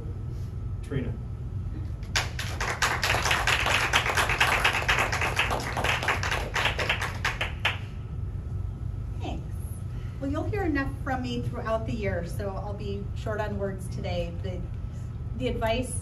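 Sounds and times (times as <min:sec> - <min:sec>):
small audience applauding: 0:02.0 - 0:07.9.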